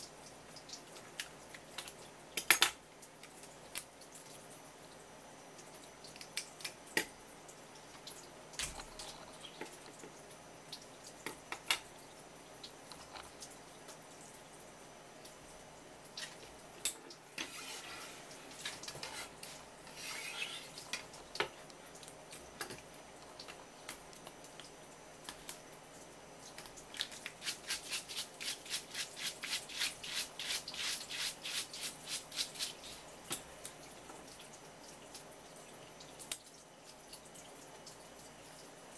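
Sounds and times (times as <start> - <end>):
tap water running: 0.0 - 38.9
scraping strokes on crab: 17.4 - 18.3, 18.9 - 20.8, 27.3 - 33.0.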